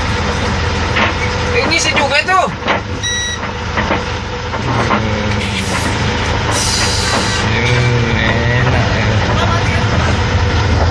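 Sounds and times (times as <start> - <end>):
diesel engine humming: 0.0 - 10.9
short burst of hissing: 6.5 - 7.4.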